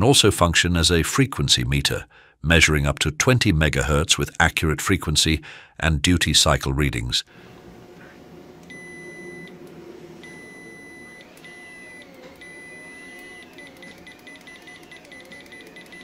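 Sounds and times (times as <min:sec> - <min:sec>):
high-pitched multimeter beeping: 0:10.2 - 0:16.0.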